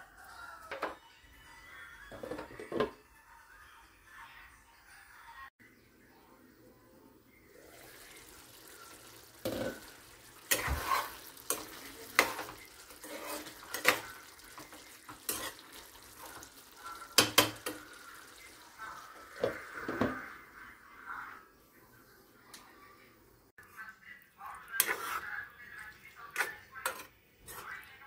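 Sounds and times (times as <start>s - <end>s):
simmering sizzle: 5.9s - 28.0s
spoon scraping a pan: 8.0s - 18.5s, 24.5s - 28.0s.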